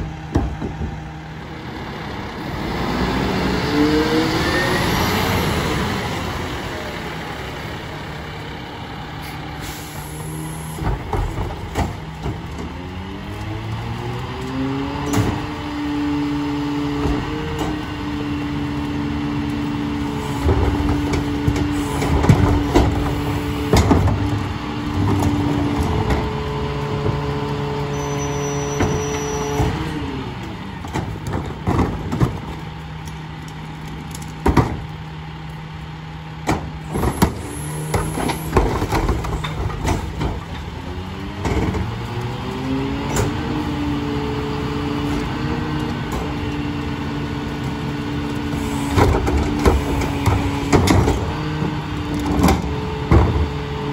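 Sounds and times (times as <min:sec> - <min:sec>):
trash knocking and banging: 0:00.0 - 0:01.2, 0:10.7 - 0:16.1, 0:19.0 - 0:27.8, 0:28.6 - 0:30.0, 0:30.8 - 0:32.8, 0:33.9 - 0:35.1, 0:36.4 - 0:46.5, 0:48.3 - 0:53.9
truck engine whining at high revs: 0:00.0 - 0:53.9.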